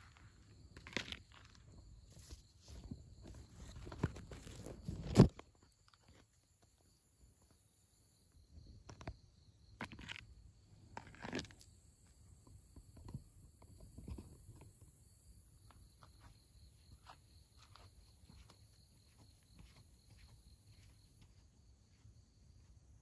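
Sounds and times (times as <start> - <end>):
faint scattered ticks: 0.0 - 21.3
high insect drone: 6.5 - 22.0.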